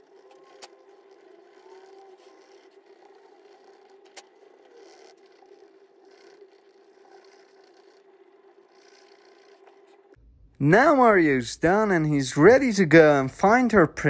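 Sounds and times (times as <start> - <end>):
pencil scratching on paper: 0.0 - 10.2
faint hum: 0.0 - 14.0.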